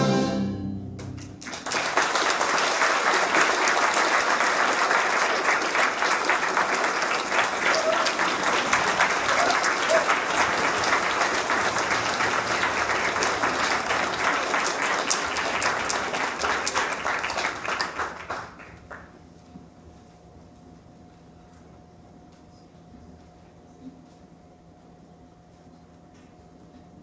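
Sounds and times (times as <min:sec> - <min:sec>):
audience applauding: 0:01.0 - 0:19.2.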